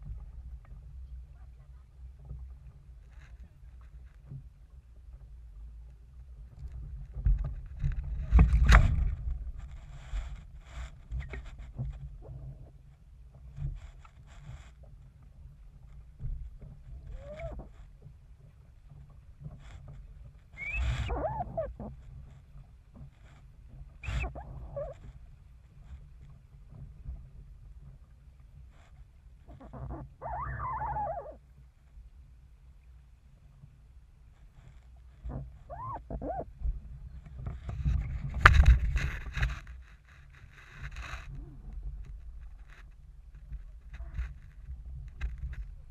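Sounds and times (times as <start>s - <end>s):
sail and rigging flapping: 0.0s - 32.4s, 33.3s - 45.9s
wind rumbling on microphone: 0.0s - 45.9s
crew scrambling across the hull: 2.2s - 4.4s, 6.5s - 28.0s, 34.4s - 45.9s
wavering cry: 20.6s - 21.7s, 29.9s - 31.4s, 35.7s - 36.5s.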